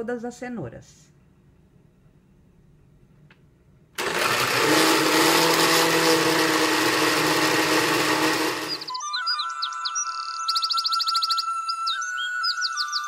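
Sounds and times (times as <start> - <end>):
blender running: 4.0 - 8.9.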